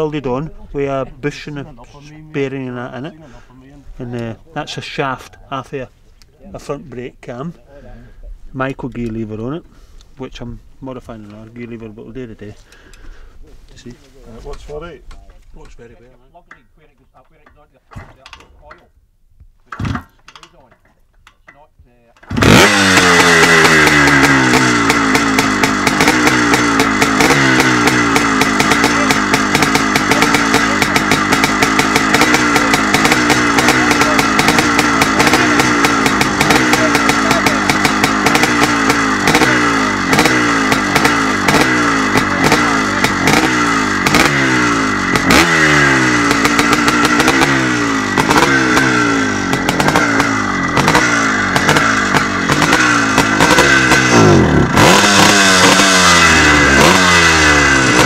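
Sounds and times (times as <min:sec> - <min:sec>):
two-stroke engine revving: 0:22.2 - 0:58.0.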